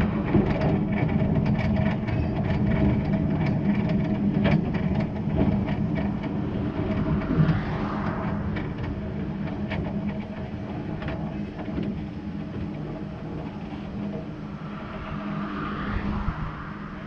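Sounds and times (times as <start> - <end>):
steam locomotive rumbling: 0.0 - 17.0
car passing: 4.8 - 10.7, 13.1 - 17.0.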